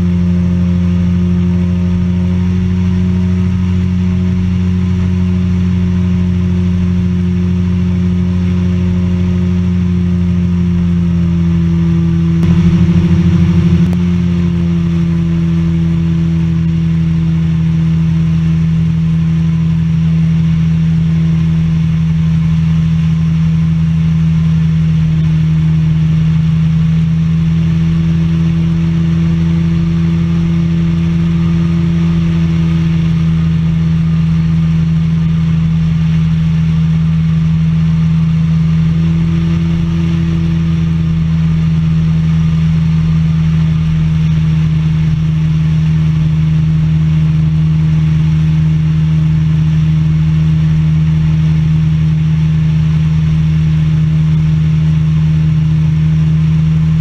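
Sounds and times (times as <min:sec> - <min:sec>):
light aircraft engine drone: 0:00.0 - 0:57.0.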